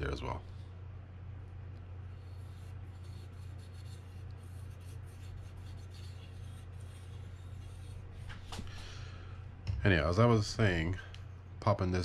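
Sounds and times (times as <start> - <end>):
steady low hum: 0.0 - 12.0
scratchy rubbing: 2.0 - 8.6.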